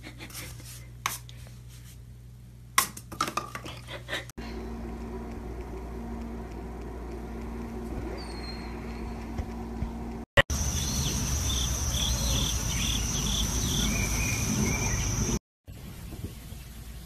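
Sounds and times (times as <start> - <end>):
high-pitched insect drone: 10.5 - 15.4.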